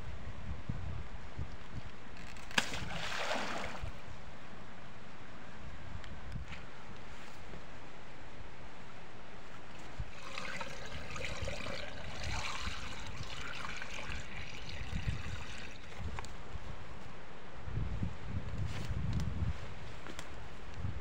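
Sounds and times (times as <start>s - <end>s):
wind rumble on microphone: 0.0s - 4.6s, 5.5s - 7.7s, 9.8s - 21.0s
water pouring into pump: 10.1s - 16.2s.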